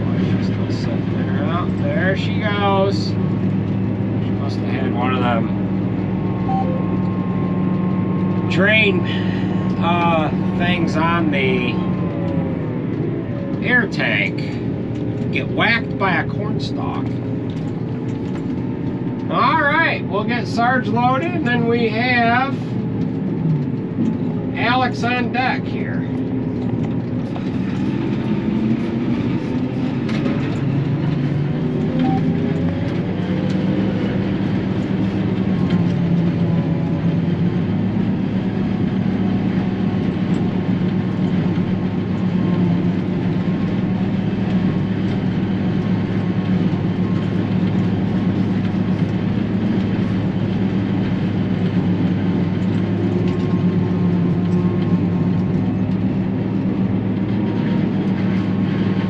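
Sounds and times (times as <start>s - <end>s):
forage harvester droning: 0.0s - 59.0s.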